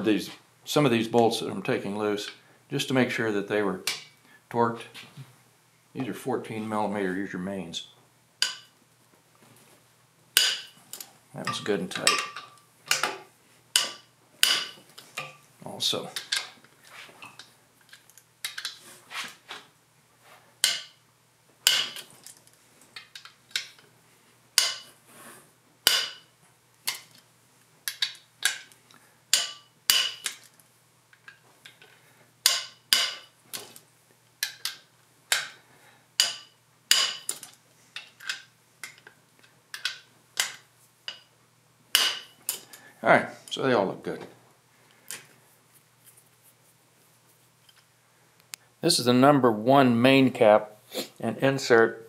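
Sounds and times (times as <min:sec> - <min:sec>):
metal clinking: 0:29.3 - 0:30.6.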